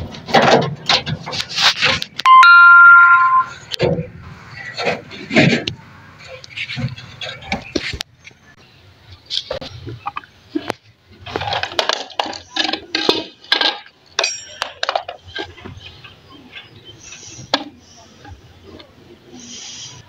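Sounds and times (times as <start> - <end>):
metallic ring: 2.3 - 3.7
metal parts clinking on concrete: 11.5 - 15.2.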